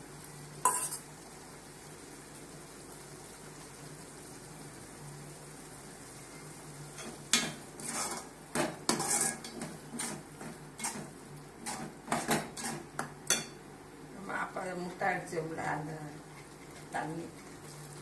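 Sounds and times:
ladle scraping a metal pot: 0:07.8 - 0:08.3, 0:08.9 - 0:12.9.

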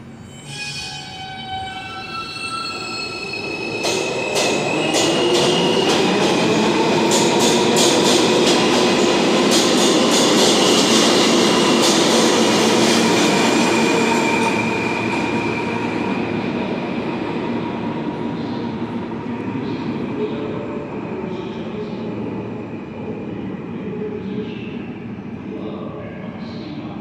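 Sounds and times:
subway train rumbling: 0:00.0 - 0:27.0
high wheel squeal: 0:00.2 - 0:05.8.

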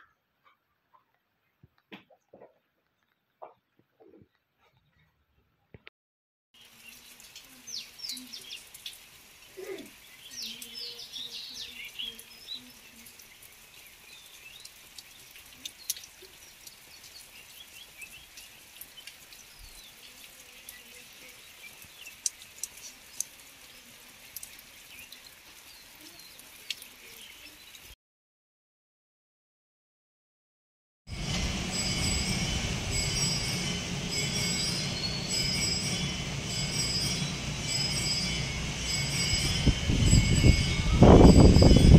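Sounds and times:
small birds chirping: 0:06.6 - 0:27.9, 0:31.8 - 0:41.9
light rain pattering and dripping: 0:06.6 - 0:28.0.

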